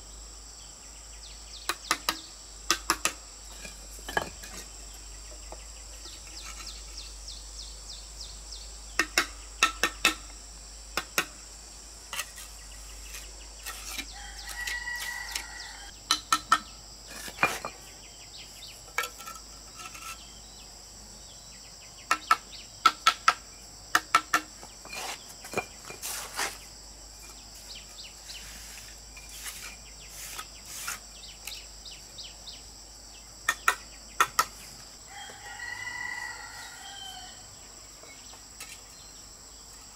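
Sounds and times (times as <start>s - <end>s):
insects droning: 0.0s - 39.9s
bricks and stones knocking: 1.7s - 4.7s, 16.1s - 17.8s, 18.9s - 20.2s, 22.1s - 26.1s
rooster crowing: 14.1s - 15.9s, 35.1s - 37.5s.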